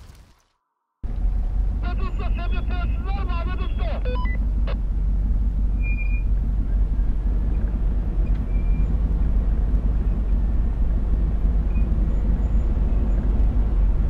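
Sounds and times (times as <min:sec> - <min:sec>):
engine and road rumble: 0:00.0 - 0:14.0
faint short squeaks: 0:05.8 - 0:06.3.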